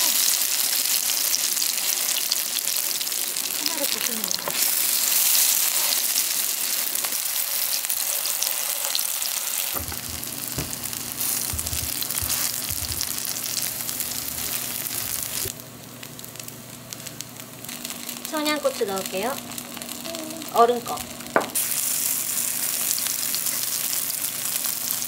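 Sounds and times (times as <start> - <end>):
pancakes sizzling in oil: 0.0 - 25.0
spatula scraping and tapping pan: 9.8 - 13.2
steady low hum: 9.8 - 21.4.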